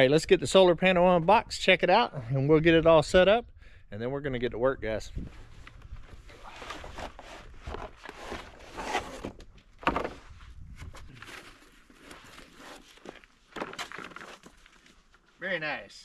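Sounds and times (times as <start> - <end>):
cardboard and foam rustling: 5.4 - 15.3.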